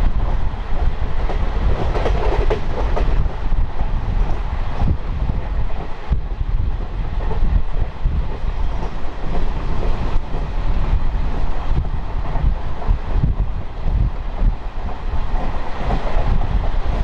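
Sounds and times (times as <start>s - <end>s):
train wheels rumbling on rail: 0.0s - 17.0s
clacks over rail joints: 0.8s - 3.4s, 6.8s - 10.5s.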